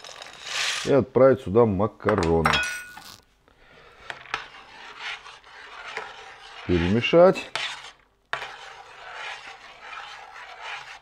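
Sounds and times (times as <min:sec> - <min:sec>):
spoon scraping metal pot: 0:02.8 - 0:11.0.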